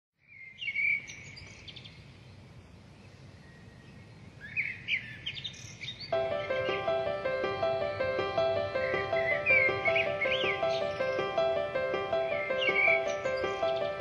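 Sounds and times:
songbirds chirping: 0.2 - 14.0
instrumental music: 6.2 - 14.0.

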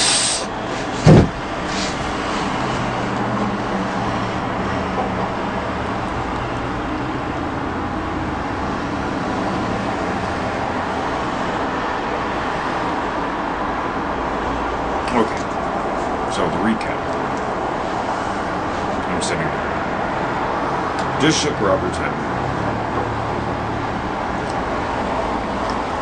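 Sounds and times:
road traffic noise: 0.0 - 26.0.

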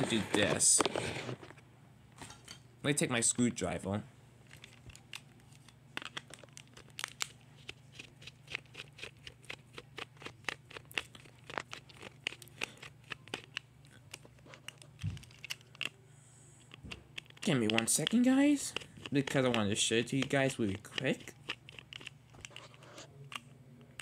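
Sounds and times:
clicks and taps of small objects: 16.7 - 22.6.

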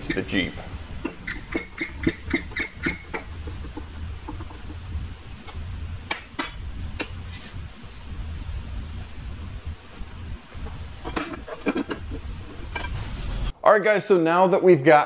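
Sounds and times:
hand pump squeaking: 1.0 - 4.6.

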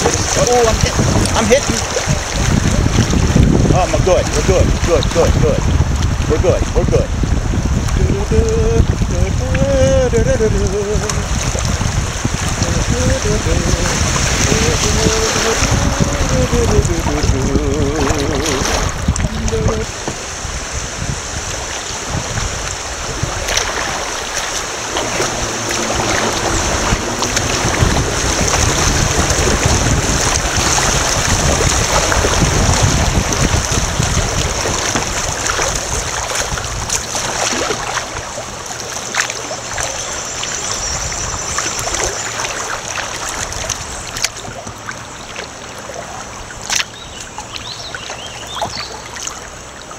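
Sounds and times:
low microphone rumble: 0.0 - 38.7
water rushing around kayak hull: 0.0 - 49.9.

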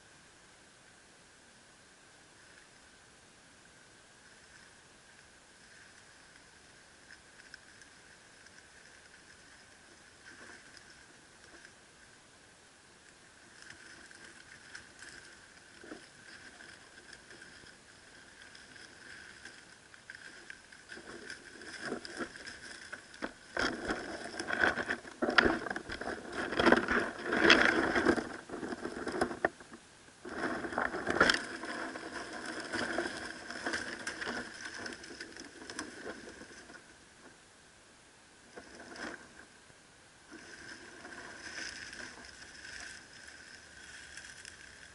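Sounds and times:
lizard rustling in dry leaves: 4.2 - 12.1, 13.1 - 29.6, 30.2 - 37.3, 40.2 - 44.9
claws scraping plastic container: 30.2 - 36.9, 40.3 - 44.9.

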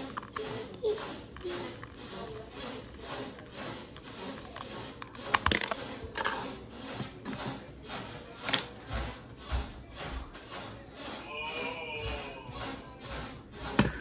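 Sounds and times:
screwdriver clicks and clatter: 5.0 - 6.4.

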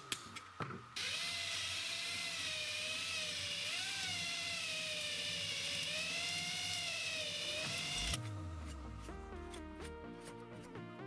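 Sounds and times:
drill boring into steel: 1.0 - 8.2.

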